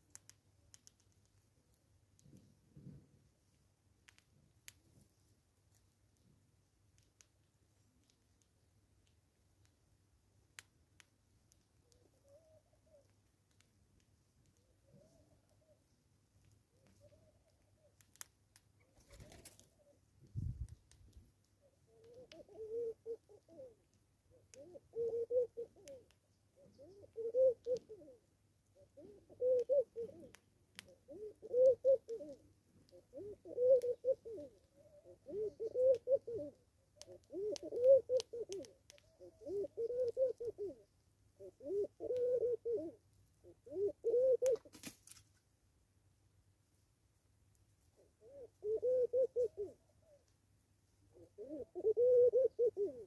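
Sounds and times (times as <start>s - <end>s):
dove cooing: 11.8s - 13.1s, 16.7s - 18.0s, 21.6s - 44.9s, 48.0s - 50.2s, 51.1s - 53.0s.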